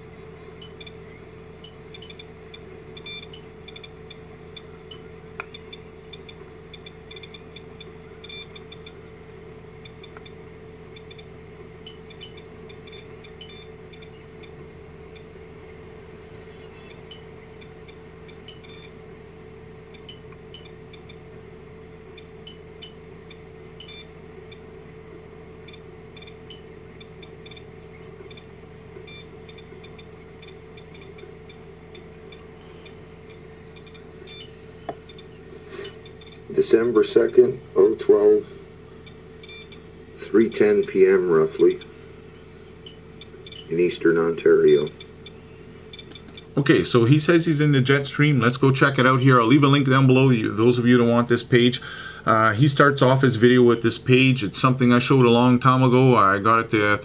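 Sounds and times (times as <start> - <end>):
steady low hum: 0.0 - 57.0
dosimeter clicking: 9.8 - 15.3, 16.2 - 18.9, 19.9 - 21.6, 22.2 - 24.7, 25.6 - 36.5, 42.8 - 43.7, 44.9 - 46.5.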